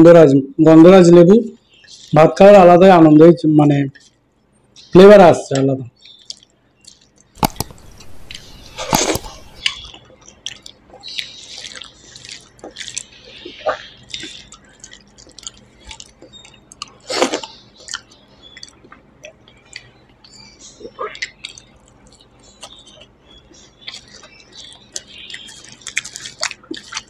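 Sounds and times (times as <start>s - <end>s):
chewing: 3.9s - 4.2s, 6.0s - 27.0s
fingers squishing wet rice: 6.0s - 20.3s, 21.0s - 27.0s.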